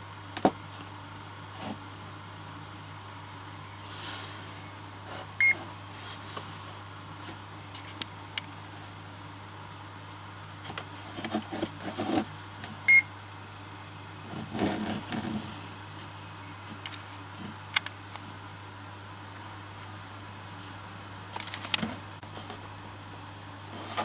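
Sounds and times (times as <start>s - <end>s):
handling clicks and rustling: 21.3s - 22.0s.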